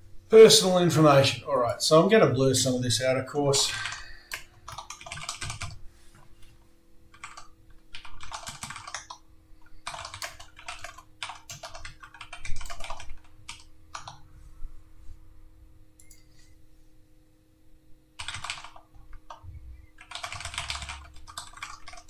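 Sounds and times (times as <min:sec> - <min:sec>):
faint steady hum: 0:00.0 - 0:22.0
typing on a computer keyboard: 0:03.8 - 0:05.8, 0:07.1 - 0:09.2, 0:09.8 - 0:14.2, 0:18.2 - 0:19.4, 0:20.0 - 0:22.0.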